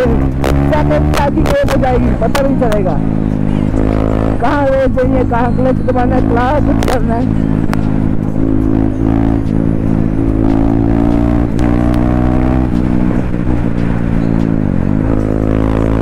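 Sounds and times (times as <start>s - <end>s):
motorcycle engine revving: 0.0s - 16.0s
person speaking: 3.6s - 7.4s.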